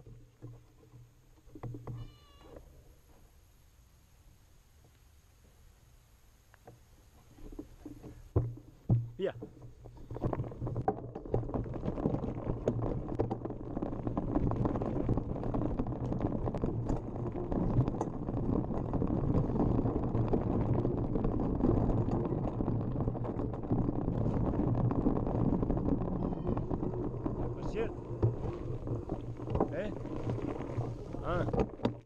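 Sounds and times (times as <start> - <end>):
bike rattling and knocking: 0.0 - 2.4, 6.6 - 32.0
tyres rumbling on dirt: 7.3 - 32.0.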